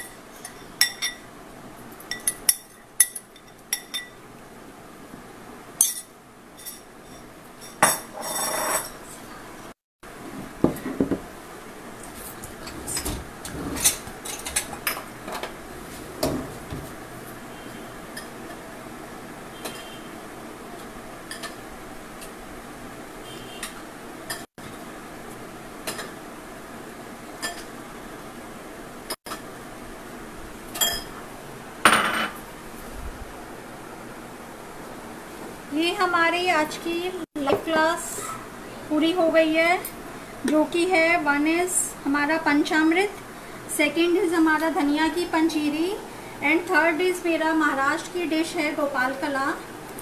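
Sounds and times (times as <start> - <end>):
bowls and spoon clattering: 5.8 - 9.0.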